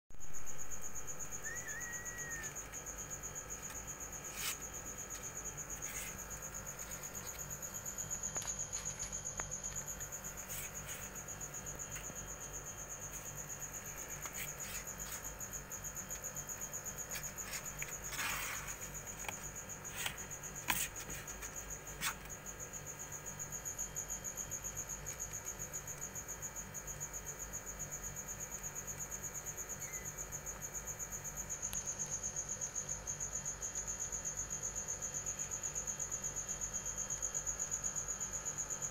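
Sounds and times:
insect trill: 0.1s - 38.9s.

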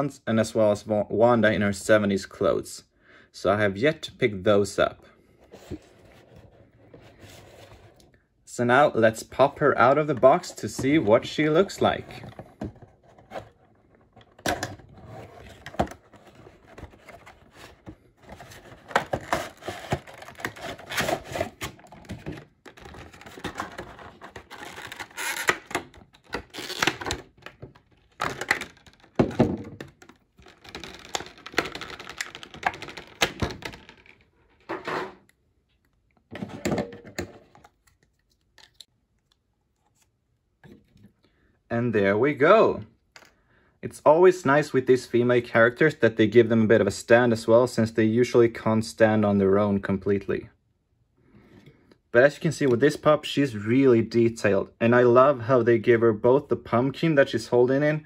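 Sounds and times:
cardboard box rustling and crinkling: 14.9s - 25.4s.

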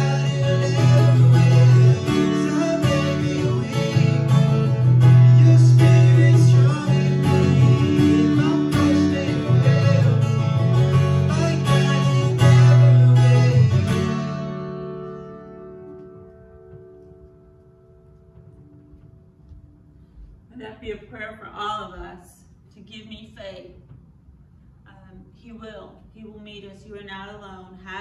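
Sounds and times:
man singing worship song: 0.0s - 14.3s
acoustic guitar strumming: 0.0s - 19.8s.

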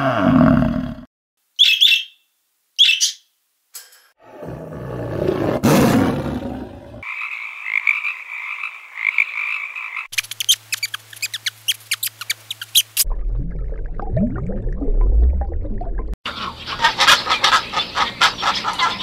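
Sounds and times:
tiger growling: 4.2s - 7.0s
high trilling call: 10.1s - 13.0s
rat squeaking: 10.1s - 13.0s
low rumbling with gliding tones: 13.1s - 16.2s.

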